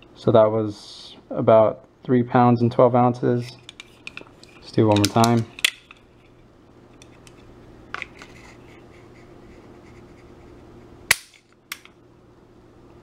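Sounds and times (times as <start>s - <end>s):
pistol hammer metallic snap: 11.1s - 12.0s.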